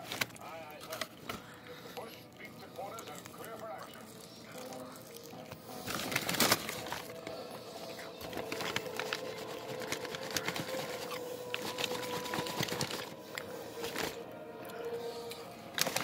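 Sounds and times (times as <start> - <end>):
paper wrapper crinkling: 0.0 - 1.6, 5.5 - 14.2, 15.7 - 16.0.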